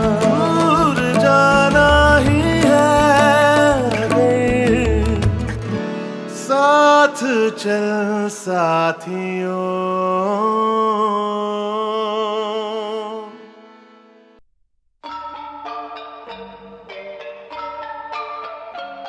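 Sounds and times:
song with singing voice: 0.0s - 13.8s.

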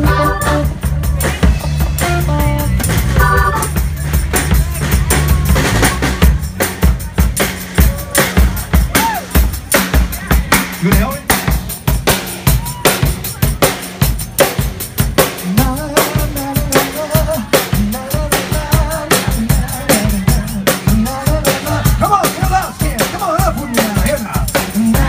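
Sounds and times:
bass line: 0.0s - 25.0s
live band playing: 0.0s - 25.0s.

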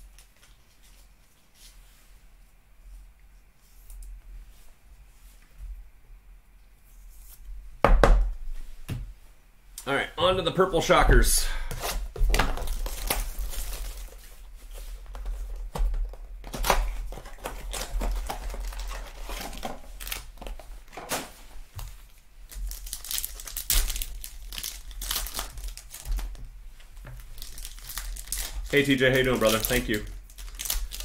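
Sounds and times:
foil wrappers crinkling: 12.3s - 15.6s, 16.4s - 21.1s, 22.5s - 31.0s
card pack tearing open: 12.4s - 14.2s, 16.5s - 20.4s, 22.7s - 26.3s, 27.4s - 31.0s.

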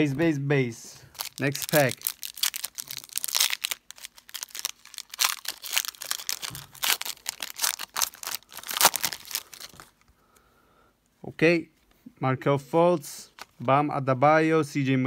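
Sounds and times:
foil wrapper tearing and crinkling: 1.1s - 9.9s.

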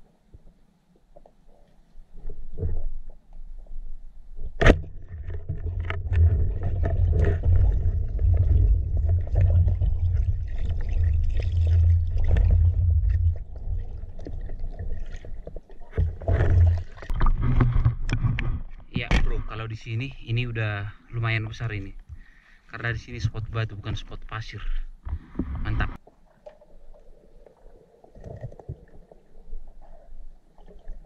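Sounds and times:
water churning and rushing: 4.8s - 17.9s.

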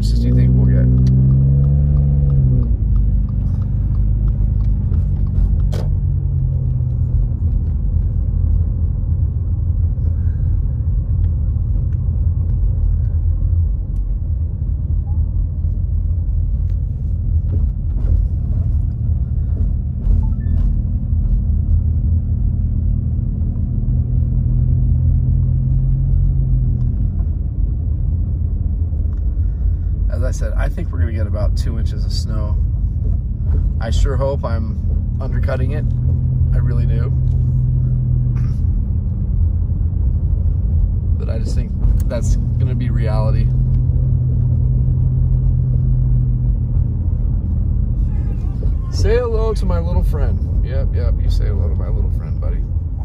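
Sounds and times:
engine and tyre rumble: 0.0s - 53.0s.

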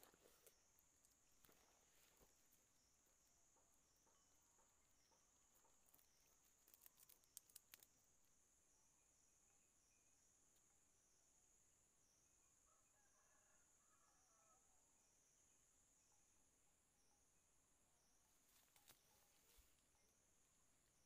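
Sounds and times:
soft clicks and rustles in leaves: 0.0s - 2.7s, 5.8s - 8.2s, 18.3s - 19.9s.

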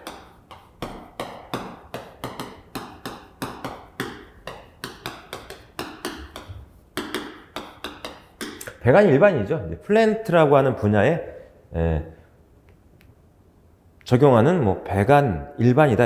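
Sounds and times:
chalk tapping on chalkboard: 0.0s - 8.8s.

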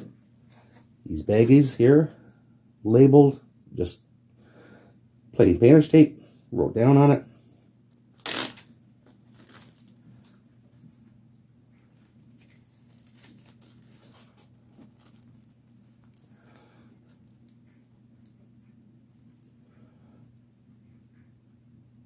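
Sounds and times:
low steady hum: 0.0s - 22.0s
plastic bag crinkling: 7.9s - 11.1s, 11.7s - 18.5s.

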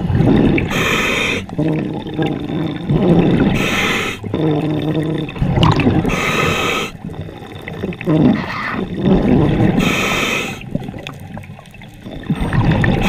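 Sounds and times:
exhaled bubbles gurgling: 0.0s - 13.0s
regulator inhalation hiss: 0.7s - 1.5s, 3.5s - 4.3s, 6.1s - 7.0s, 9.8s - 10.7s.

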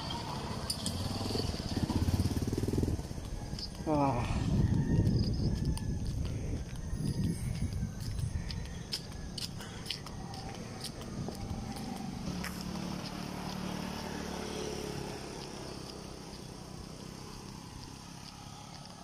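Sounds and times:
small motorcycle engine passing: 0.0s - 5.6s, 10.0s - 19.0s
footstep clicks: 5.0s - 13.8s.

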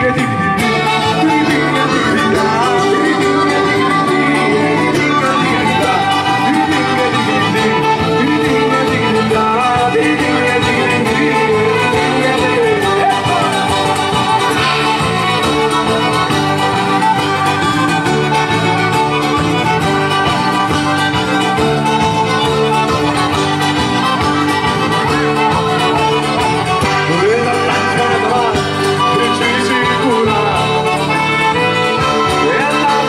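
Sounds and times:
folk band playing: 0.0s - 33.0s.

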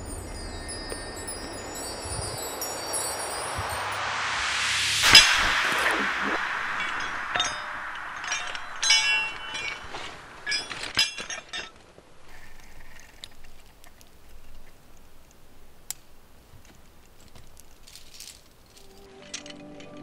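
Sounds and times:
metal climbing hardware clinking: 10.4s - 14.6s.

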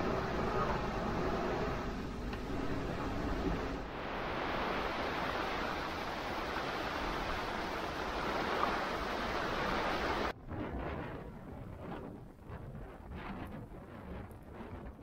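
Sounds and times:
heavy rain on canvas: 0.0s - 10.4s
strong wind: 0.0s - 15.0s.

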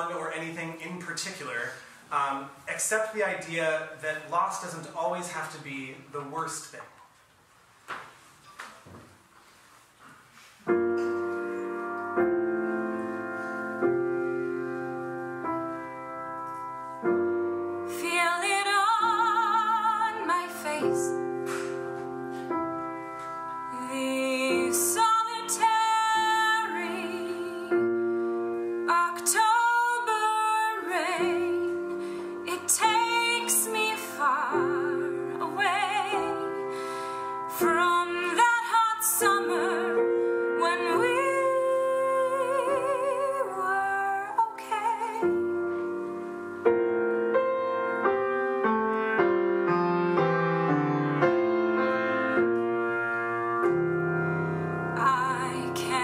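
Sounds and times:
grand piano: 0.0s - 7.1s, 7.8s - 56.0s
woman singing with vibrato: 17.9s - 21.2s, 23.7s - 27.9s, 28.9s - 36.8s, 37.4s - 45.4s, 54.9s - 56.0s.

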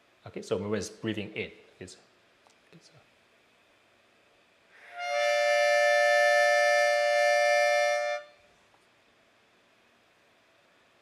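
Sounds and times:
harmonica chord: 4.8s - 8.4s.

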